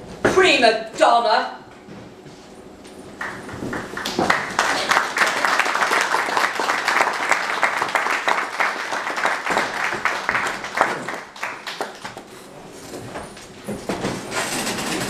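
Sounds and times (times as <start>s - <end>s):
audience applauding: 3.2s - 12.3s.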